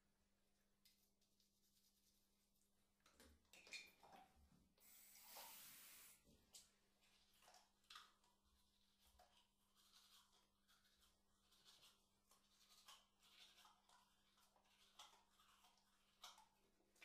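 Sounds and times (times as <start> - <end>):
toothbrush scrubbing teeth: 4.8 - 17.0.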